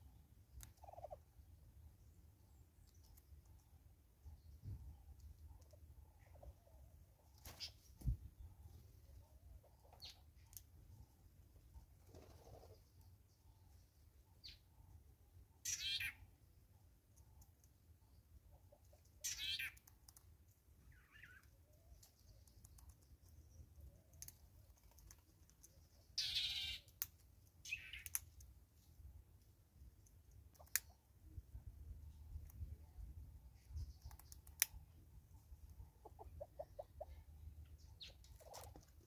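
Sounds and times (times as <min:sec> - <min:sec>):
bird calls: 0:15.6 - 0:16.3, 0:19.2 - 0:19.8, 0:20.9 - 0:22.5, 0:26.0 - 0:26.9.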